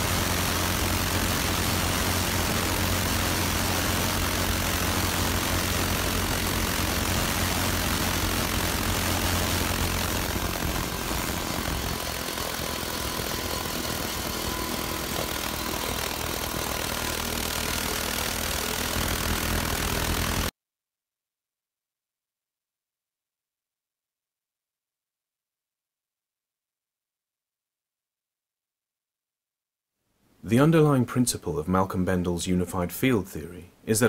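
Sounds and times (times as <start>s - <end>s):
engine humming: 0.0s - 20.5s.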